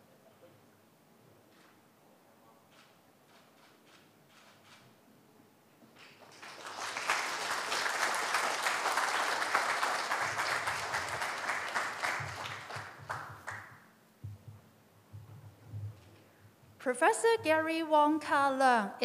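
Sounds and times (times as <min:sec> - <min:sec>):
audience applauding: 0:06.0 - 0:13.8.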